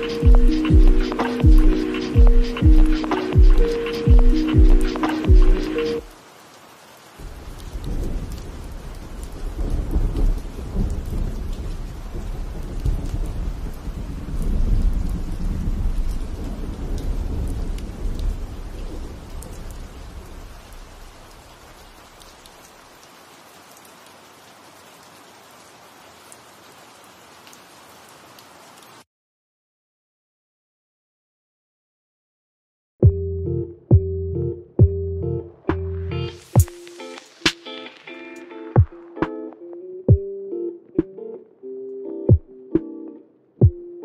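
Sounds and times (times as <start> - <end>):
thunder rumbling: 7.2 - 20.6
faint hiss: 36.3 - 39.5.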